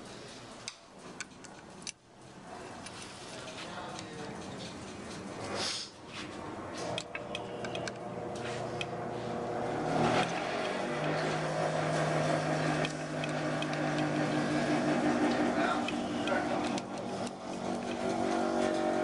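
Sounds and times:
machine hum: 0:06.2 - 0:19.0
screwdriver clicks: 0:12.8 - 0:14.2.

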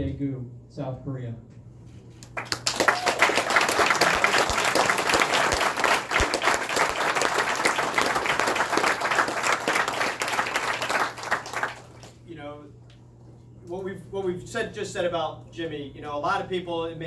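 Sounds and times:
group of people applauding: 0:02.2 - 0:12.2.

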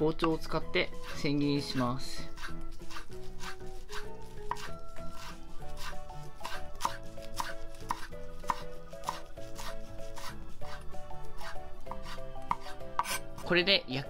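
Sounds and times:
knife tapping on cutting board: 0:00.2 - 0:00.4, 0:04.5 - 0:04.7, 0:06.4 - 0:09.3, 0:11.9 - 0:13.2.

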